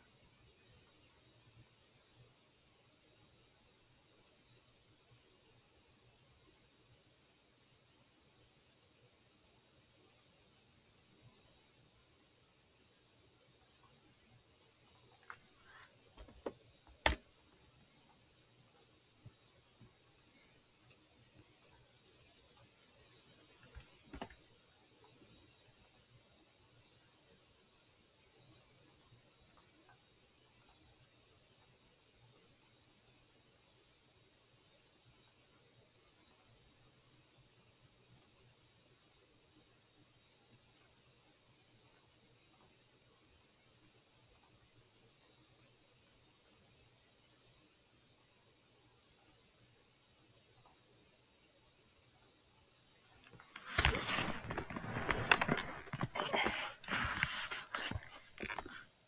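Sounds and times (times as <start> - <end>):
computer mouse clicking: 14.8 - 17.2, 18.6 - 18.9, 20.0 - 21.0, 21.6 - 21.9, 22.5 - 22.7, 23.6 - 24.4, 25.8 - 26.1, 28.5 - 29.7, 30.6 - 30.8, 32.3 - 32.6, 35.1 - 35.4, 36.2 - 36.6, 38.1 - 38.4, 41.8 - 42.8, 44.3 - 44.6, 46.4 - 46.7, 49.2 - 49.4, 50.6 - 50.8, 52.1 - 52.4, 53.0 - 58.9
rough rustling noise: 53.3 - 59.0.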